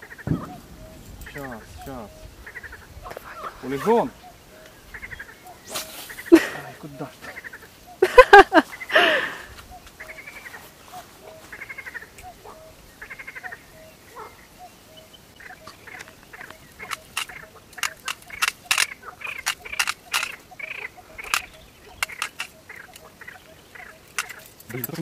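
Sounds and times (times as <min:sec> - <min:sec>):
frogs croaking: 0:00.0 - 0:25.0
sharp irregular clicks: 0:15.6 - 0:20.4, 0:21.2 - 0:23.1, 0:24.0 - 0:25.0.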